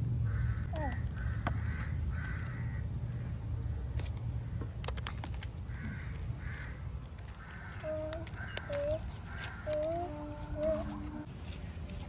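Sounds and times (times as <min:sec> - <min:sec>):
crows cawing: 0:00.3 - 0:03.3, 0:05.7 - 0:11.0.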